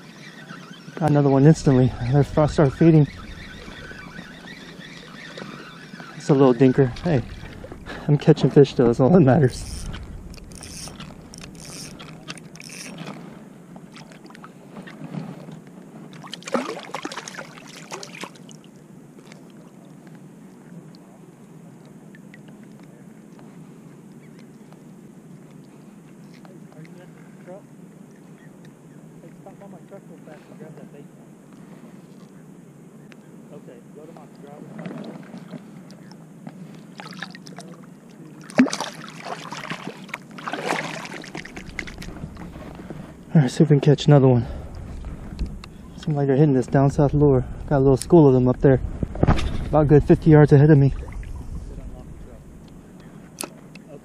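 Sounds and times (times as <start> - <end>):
water sloshing and splashing: 0.0 - 21.1, 34.4 - 43.3, 48.9 - 53.9.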